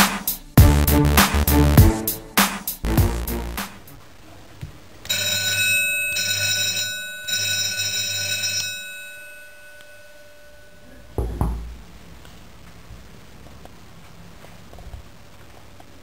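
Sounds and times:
electric school bell ringing: 5.1 - 11.1.

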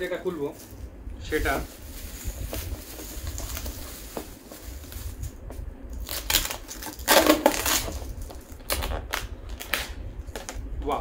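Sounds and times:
plastic tub crinkling and rustling: 1.5 - 5.4.

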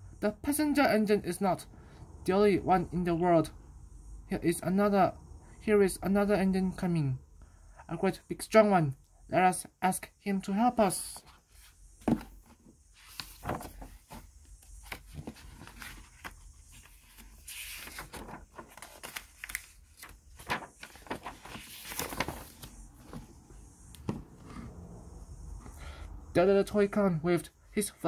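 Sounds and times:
book pages turning: 11.1 - 23.4.

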